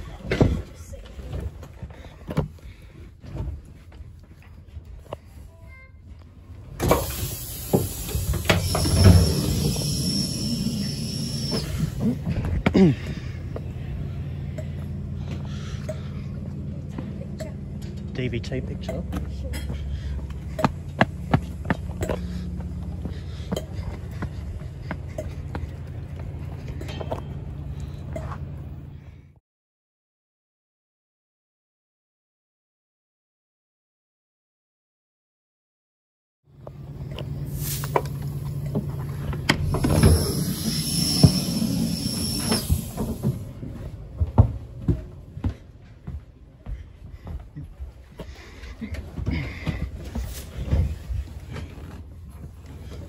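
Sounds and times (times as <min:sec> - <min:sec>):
train idling hum: 0:03.8 - 0:29.3, 0:36.5 - 0:53.0
footsteps on paving: 0:19.1 - 0:26.8.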